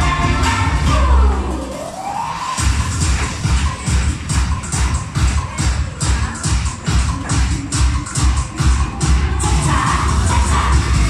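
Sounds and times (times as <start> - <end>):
loud dance-pop music: 0.0 - 11.0
heavy kick drum: 2.6 - 11.0.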